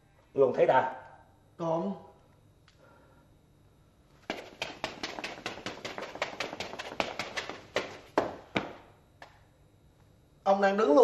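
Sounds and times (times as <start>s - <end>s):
sharp knocks: 4.3s - 8.8s.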